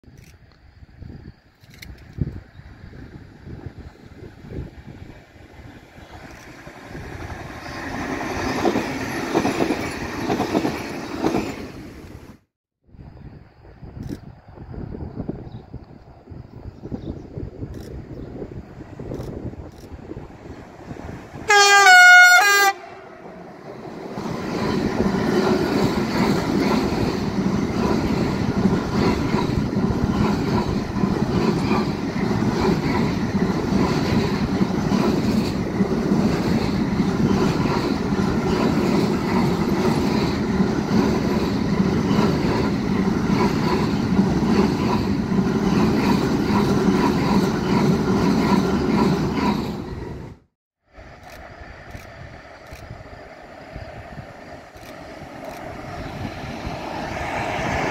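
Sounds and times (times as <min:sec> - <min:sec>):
train wheels on rails: 0:00.1 - 0:12.5, 0:13.6 - 0:57.9
train horn blast: 0:21.5 - 0:23.2.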